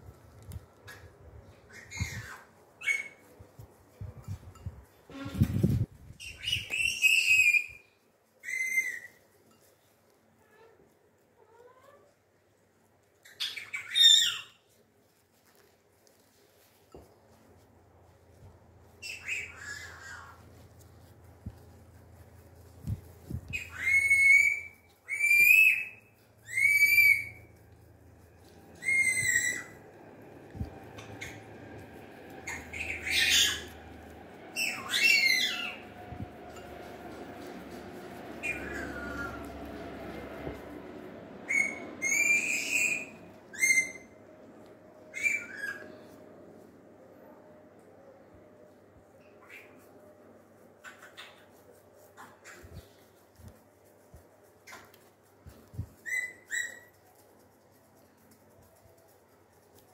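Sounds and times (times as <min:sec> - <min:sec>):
high whistle-like animal calls: 0:23.5 - 0:27.5, 0:28.4 - 0:36.7, 0:41.4 - 0:44.2
high whistle-like calls: 0:28.7 - 0:31.6, 0:34.5 - 0:35.9, 0:41.5 - 0:44.2.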